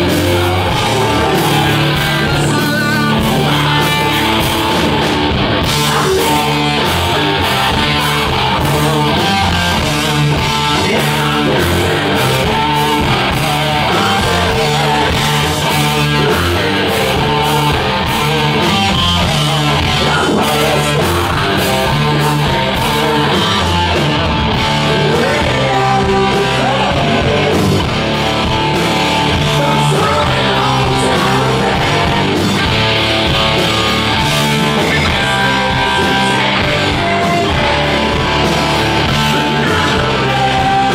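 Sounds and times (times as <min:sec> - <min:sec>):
person singing into microphone: 0:00.0 - 0:04.5, 0:24.8 - 0:27.9, 0:29.2 - 0:32.6, 0:34.8 - 0:40.9
metal band playing live: 0:00.0 - 0:40.9.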